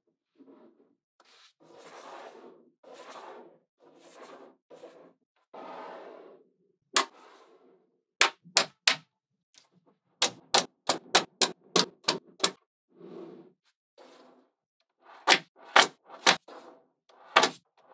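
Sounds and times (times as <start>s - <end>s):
magnetic balls sliding on table: 0.2s - 8.0s, 12.9s - 17.9s.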